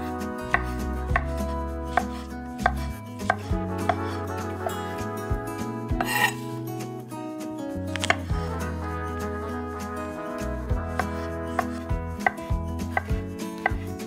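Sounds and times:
knife slicing mushrooms on board: 0:00.5 - 0:04.0.

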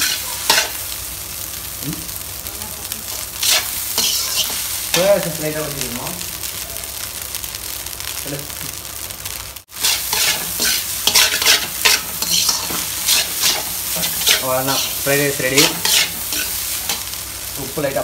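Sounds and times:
metal spatula scraping wok: 0:00.0 - 0:00.8, 0:03.1 - 0:05.1, 0:09.7 - 0:17.2
rice sizzling in oil: 0:00.0 - 0:18.0.

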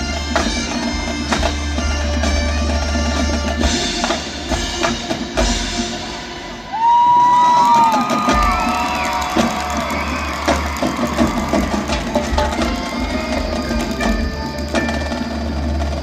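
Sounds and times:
drumline and bass drums: 0:00.0 - 0:16.0
wind and brass notes: 0:09.8 - 0:16.0.

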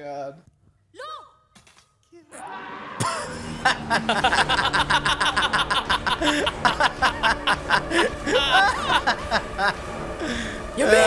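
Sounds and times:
low soundtrack music: 0:02.4 - 0:11.0
men laughing hard: 0:03.0 - 0:10.4.

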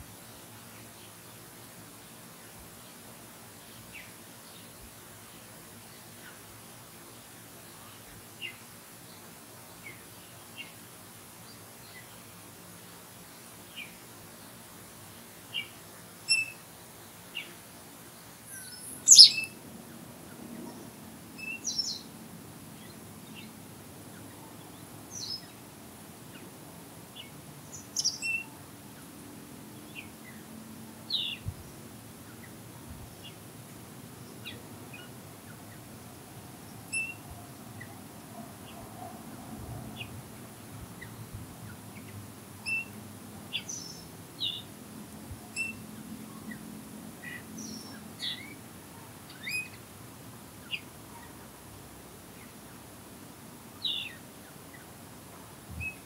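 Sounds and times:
songbirds chirping and whistling: 0:15.5 - 0:17.6, 0:18.2 - 0:19.6, 0:20.7 - 0:22.1, 0:27.2 - 0:29.1, 0:36.7 - 0:38.0, 0:41.0 - 0:44.7, 0:45.5 - 0:48.6, 0:49.3 - 0:49.8, 0:53.8 - 0:54.9.

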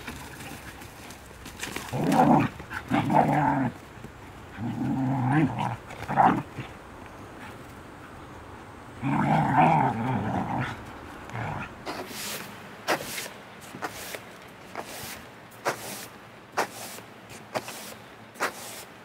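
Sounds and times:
dogs growling: 0:01.7 - 0:06.8, 0:08.9 - 0:12.1.

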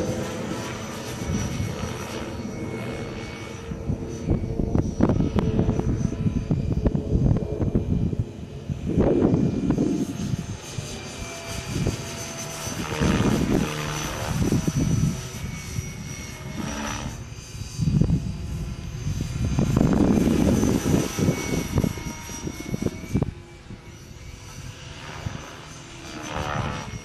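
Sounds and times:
rotor whoosh: 0:00.0 - 0:24.2
rc helicopter motor whine: 0:00.0 - 0:27.0.

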